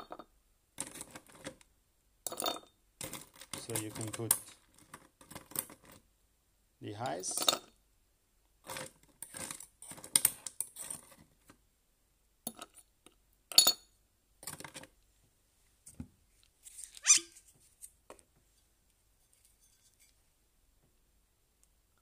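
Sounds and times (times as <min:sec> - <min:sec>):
ice clinking against metal and glass: 0:02.3 - 0:04.6.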